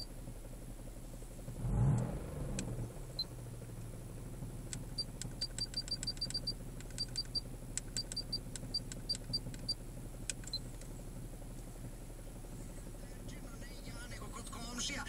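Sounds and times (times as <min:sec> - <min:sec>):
car engine idling: 0:00.0 - 0:15.0
light ticks: 0:01.9 - 0:03.3, 0:04.7 - 0:10.9.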